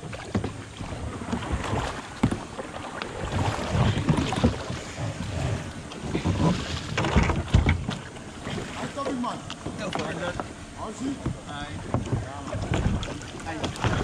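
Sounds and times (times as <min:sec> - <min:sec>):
water splashing against kayak hulls: 0:00.0 - 0:14.0
hollow knocks of kayaks: 0:00.1 - 0:10.5, 0:11.1 - 0:14.0.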